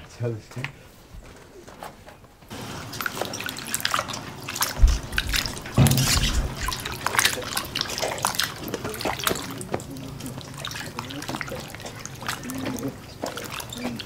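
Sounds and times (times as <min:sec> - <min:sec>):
water dripping and trickling: 0:02.5 - 0:14.0
low thumps: 0:04.8 - 0:07.0.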